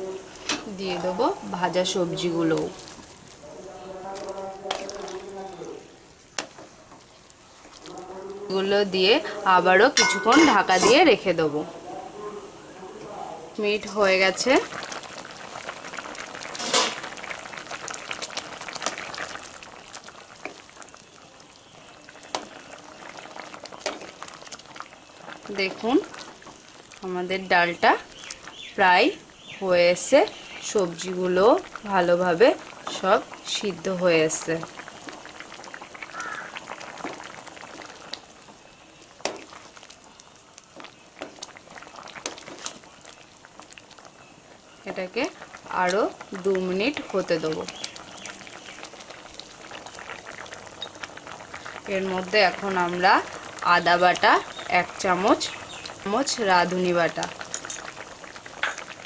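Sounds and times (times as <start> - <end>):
thick stew bubbling at a boil: 0.0 - 59.0
wooden spatula stirring: 2.2 - 8.7, 22.2 - 27.0, 39.2 - 44.2.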